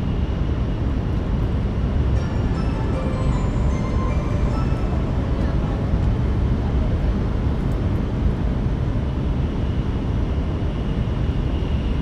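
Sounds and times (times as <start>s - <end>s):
train interior rumble: 0.8s - 9.3s.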